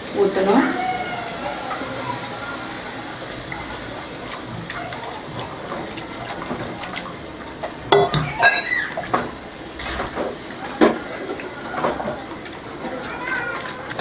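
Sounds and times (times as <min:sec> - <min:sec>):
liquid pouring and swishing: 0:01.4 - 0:08.0.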